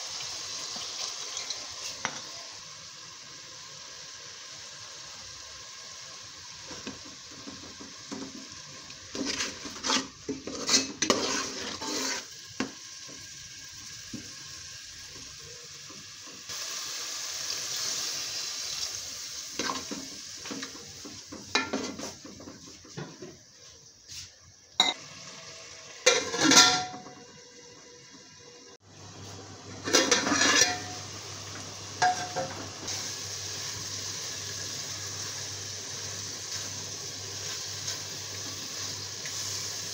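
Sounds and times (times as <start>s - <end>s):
steady hiss: 0.0s - 26.2s, 28.7s - 39.9s
frying sizzle: 0.0s - 39.9s
metal spoon scraping pot: 9.2s - 12.4s, 29.8s - 31.0s
metal lid clattering: 26.0s - 27.2s, 29.8s - 31.0s.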